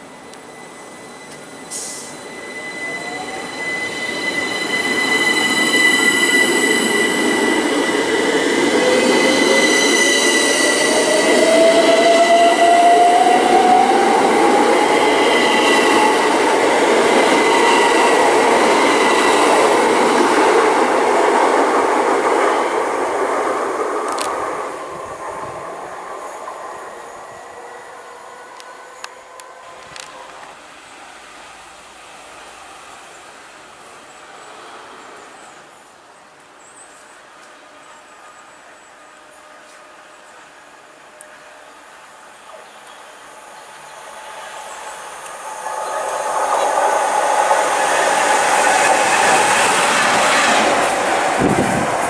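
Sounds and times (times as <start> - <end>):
steady high tone: 0.0 - 20.6.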